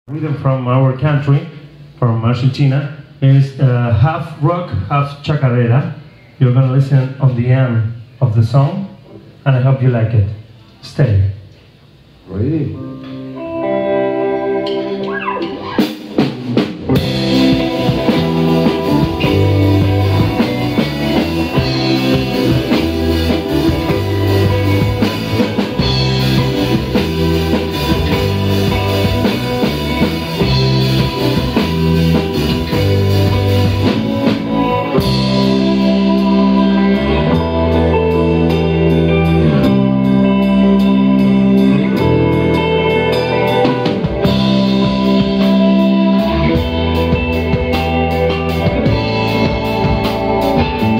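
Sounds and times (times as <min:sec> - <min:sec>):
electric bass: 0:00.0 - 0:50.9
electric guitar: 0:11.5 - 0:50.9
drum kit: 0:11.6 - 0:50.9.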